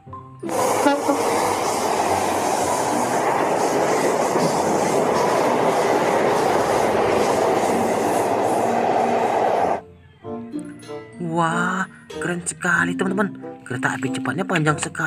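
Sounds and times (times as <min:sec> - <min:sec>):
train passing at speed: 0:00.4 - 0:09.8.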